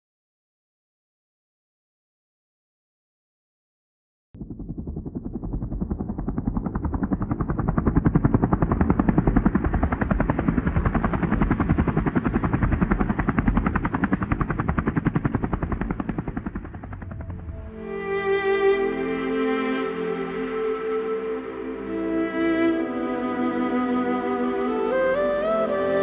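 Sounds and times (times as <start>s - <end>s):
helicopter rotor chopping: 4.4s - 18.0s.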